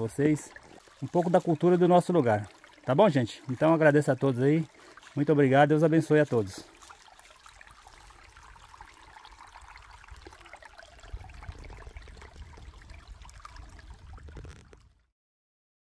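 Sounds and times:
stream trickling over stones: 0:00.0 - 0:15.1
low rumble: 0:11.1 - 0:15.0.

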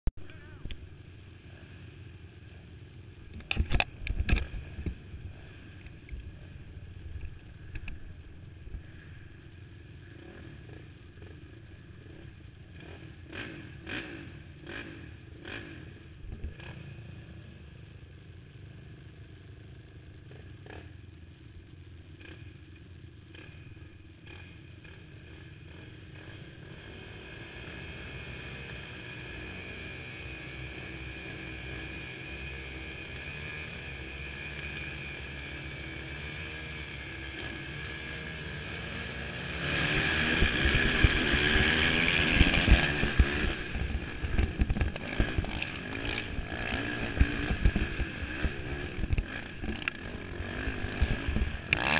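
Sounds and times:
quad engines rumbling: 0:00.1 - 0:51.9
high-pitched engine drone: 0:30.4 - 0:51.9.

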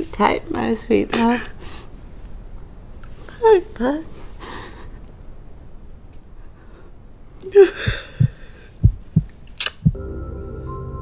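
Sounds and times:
woman crying: 0:07.5 - 0:08.4.

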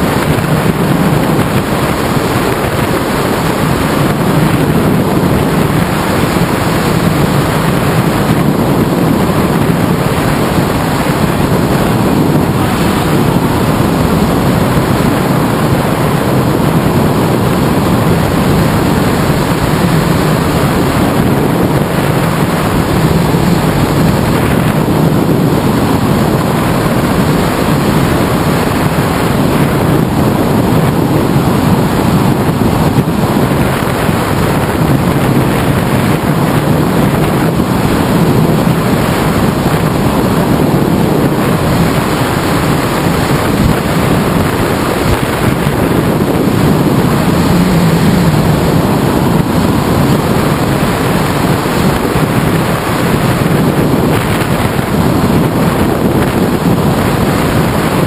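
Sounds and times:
wind buffeting microphone: 0:00.0 - 0:58.0.

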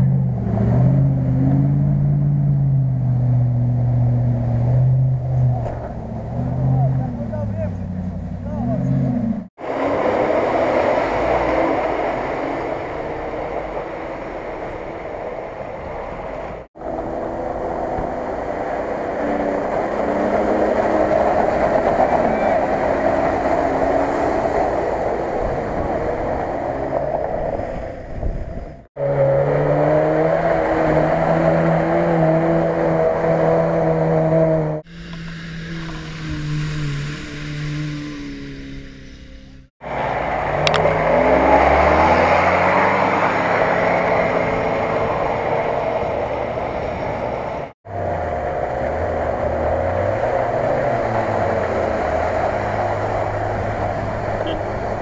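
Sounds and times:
off-road engines revving in mud: 0:00.0 - 0:15.0, 0:16.4 - 0:27.7, 0:28.9 - 0:55.0.

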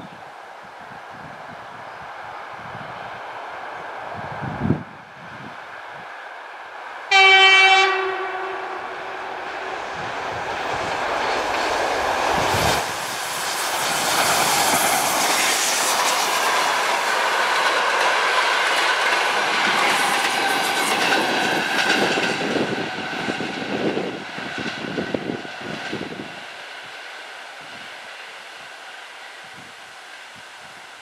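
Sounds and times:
train rushing past: 0:00.9 - 0:31.0
locomotive horn blast: 0:07.1 - 0:09.2
wheels clicking over rail joints: 0:13.9 - 0:22.7.

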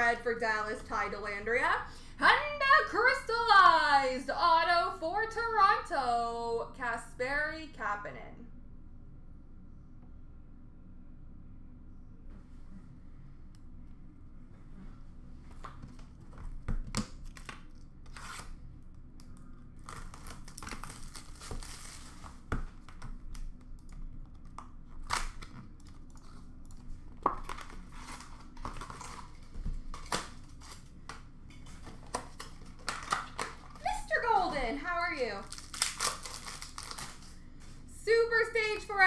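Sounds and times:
wrappers torn and crinkled: 0:19.2 - 0:22.5, 0:24.4 - 0:31.0, 0:35.2 - 0:37.4.

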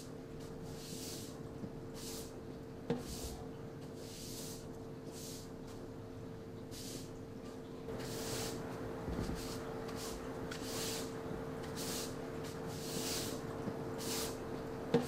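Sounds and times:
steady low hum: 0:00.0 - 0:15.0
garden tool strokes hissing: 0:00.7 - 0:01.4, 0:04.0 - 0:05.5, 0:08.0 - 0:08.6, 0:09.3 - 0:13.4, 0:14.0 - 0:14.4.

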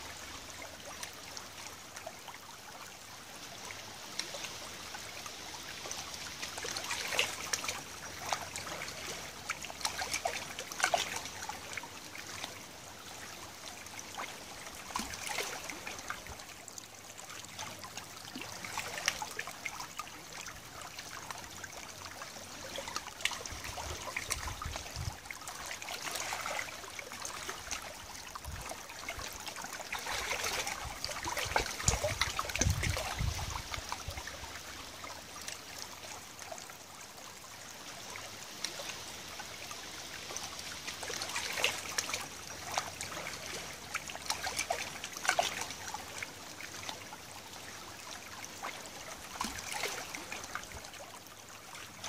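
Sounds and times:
water lapping on gravel: 0:17.4 - 0:35.7, 0:38.0 - 0:50.8.

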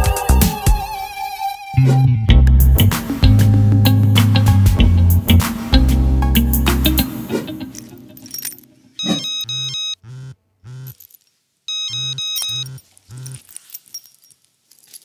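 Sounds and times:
music: 0:00.0 - 0:08.4
electronic phone ringtone: 0:09.0 - 0:10.1, 0:11.7 - 0:13.4.

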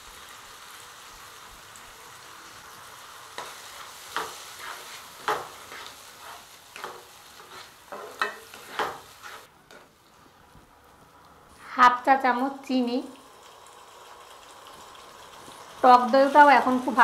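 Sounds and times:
masala sizzling in pan: 0:00.0 - 0:17.0
spatula scraping and stirring: 0:03.3 - 0:10.0.

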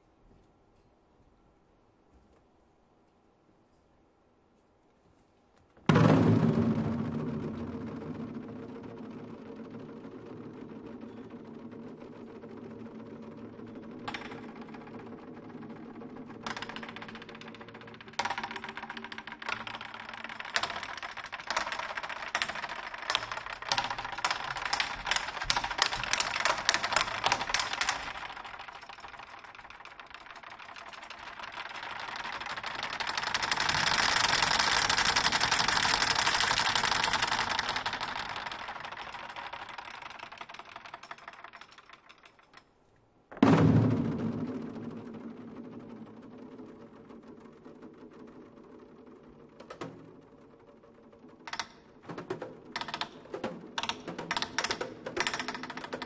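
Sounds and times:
loud drum stroke: 0:05.9 - 0:12.5, 0:43.4 - 0:46.3
drumsticks clicking and clattering: 0:07.9 - 0:43.6, 0:45.3 - 0:56.0.

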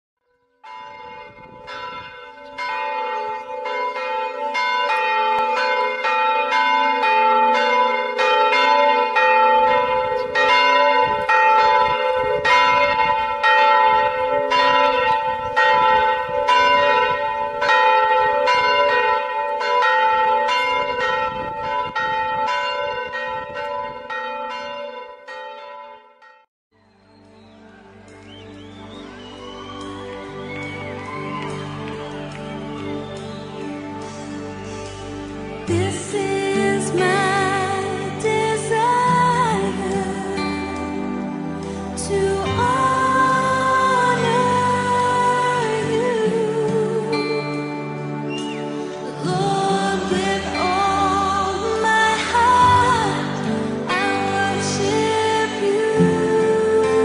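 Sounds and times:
church bells ringing: 0:00.6 - 0:26.5.

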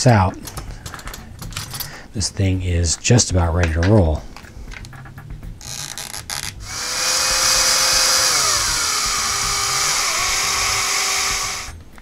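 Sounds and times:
electric screwdriver motor whine: 0:05.7 - 0:11.8.

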